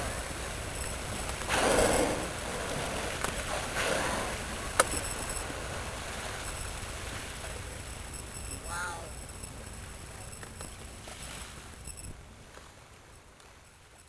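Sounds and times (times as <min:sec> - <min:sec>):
water noise: 0:00.0 - 0:14.0
wind: 0:00.0 - 0:14.0
killer whale exhaling whoosh: 0:01.5 - 0:04.6.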